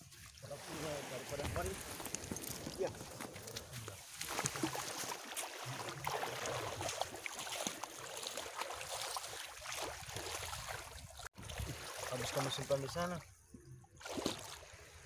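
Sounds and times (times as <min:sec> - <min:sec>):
water splashing and running off: 0:00.0 - 0:13.2.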